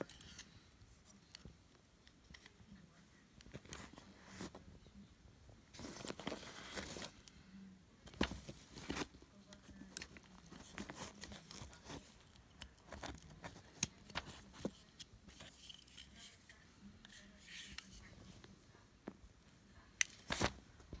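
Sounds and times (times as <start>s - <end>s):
rustling handling noise: 3.4s - 4.8s, 5.6s - 7.4s, 8.0s - 21.0s.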